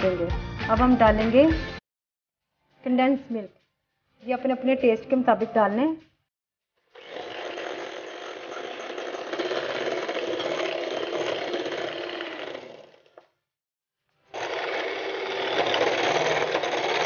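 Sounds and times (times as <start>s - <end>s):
electric hand mixer running: 6.9s - 13.3s, 14.3s - 17.0s.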